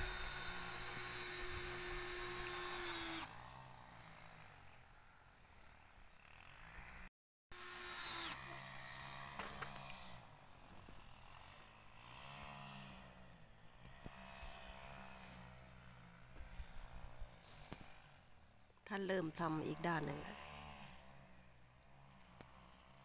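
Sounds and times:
faint power drill whine: 0.0s - 18.4s.

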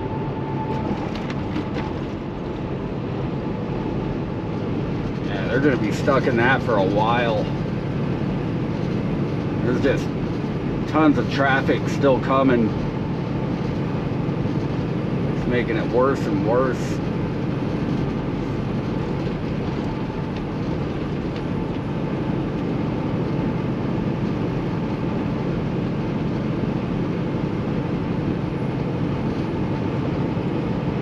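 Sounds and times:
diesel engine drone: 0.0s - 31.0s
tyre and road noise: 0.0s - 31.0s.

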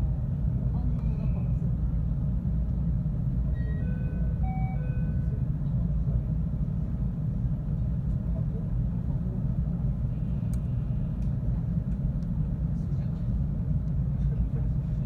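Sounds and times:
electric train rumbling: 0.0s - 15.0s.

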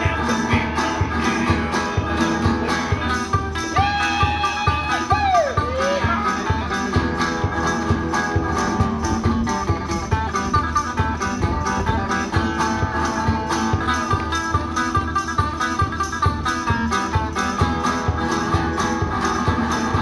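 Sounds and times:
resonator guitar country tune: 0.0s - 20.0s.

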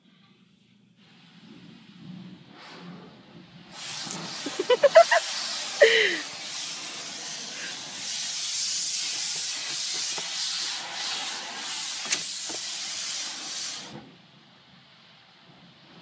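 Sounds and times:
water jets hissing on car body: 3.6s - 14.2s.

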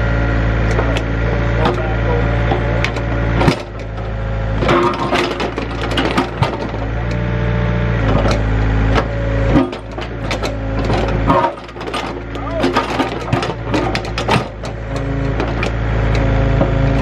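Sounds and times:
excavator diesel engine: 0.0s - 17.0s.

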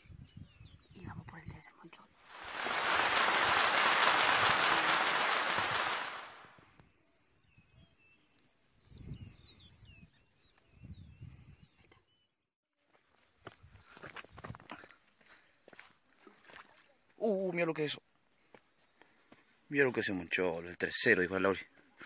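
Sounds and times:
small birds chirping: 0.0s - 3.8s, 6.8s - 22.0s
loud rushing hiss: 2.3s - 6.5s.

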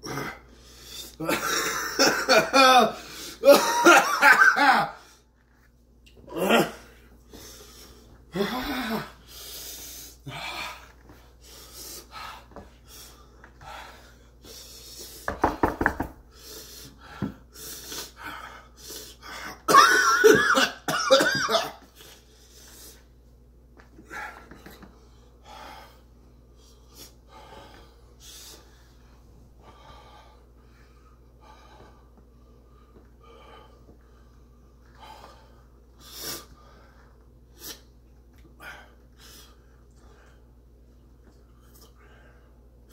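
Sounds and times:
man coughing and gasping: 1.2s - 5.0s, 6.3s - 6.9s, 19.5s - 21.9s
man groaning loudly: 8.3s - 9.2s.

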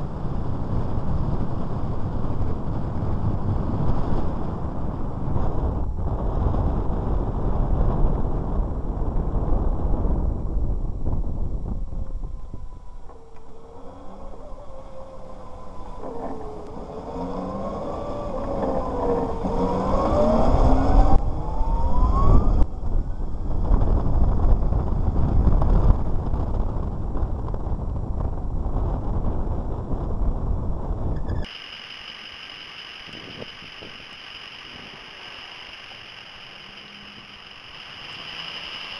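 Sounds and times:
wind and road noise: 0.0s - 38.9s
electric motorcycle motor whining: 12.9s - 22.7s, 31.2s - 38.9s.

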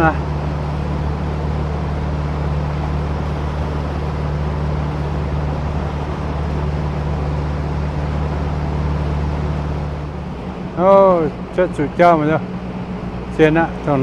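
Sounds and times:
boat motor humming: 0.0s - 14.0s
rushing water noise: 0.0s - 14.0s.

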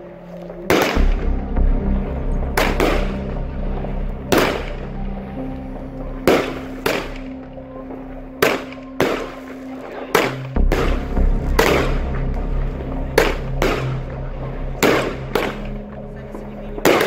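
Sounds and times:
firework bangs: 4.3s - 4.9s, 13.1s - 14.2s.

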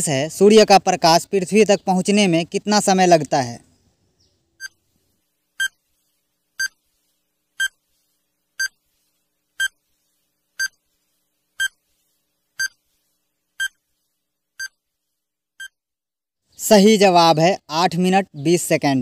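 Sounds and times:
short electronic beeps: 10.6s - 10.8s, 13.6s - 13.8s.

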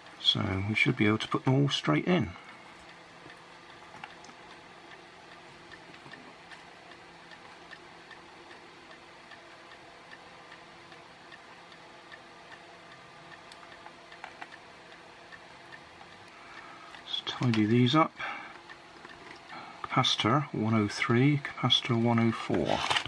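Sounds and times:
low steady hum: 0.0s - 23.0s
light clicks of small components: 16.0s - 20.3s.

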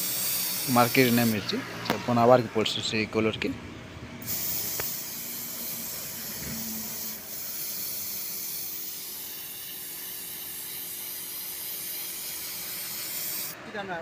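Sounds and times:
paint spray gun hissing: 0.0s - 1.4s, 4.2s - 13.6s.

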